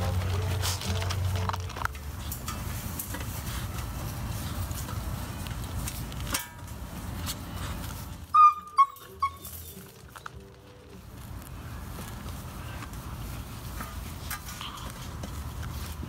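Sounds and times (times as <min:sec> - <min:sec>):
puppy yelping: 0:08.3 - 0:09.8.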